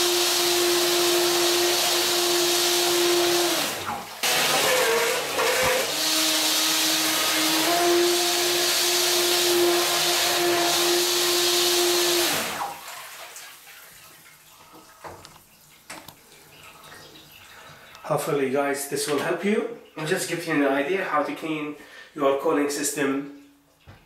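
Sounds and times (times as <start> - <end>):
propeller churning water: 0.0 - 13.3.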